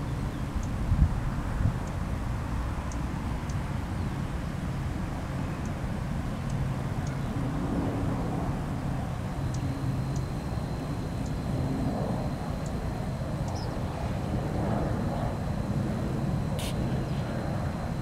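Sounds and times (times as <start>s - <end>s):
low outdoor rumble: 0.0s - 18.0s
faint high ticks: 1.8s - 2.0s, 2.8s - 3.6s, 9.4s - 11.6s, 12.6s - 13.7s.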